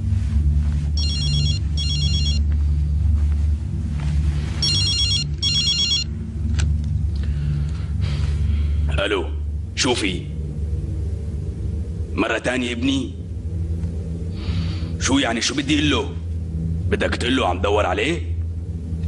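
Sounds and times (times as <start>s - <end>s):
low hum: 0.0s - 19.0s
mobile phone ringing: 1.0s - 2.4s, 4.6s - 6.1s.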